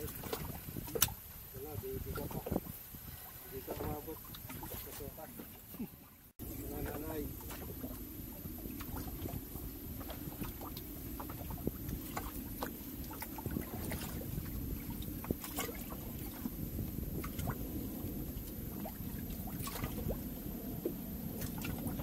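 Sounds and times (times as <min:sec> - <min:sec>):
sharp splashes and clicks: 0:00.0 - 0:01.3, 0:03.7 - 0:05.6, 0:07.3 - 0:17.6, 0:18.3 - 0:22.0
water washing against boat hull: 0:00.0 - 0:22.0.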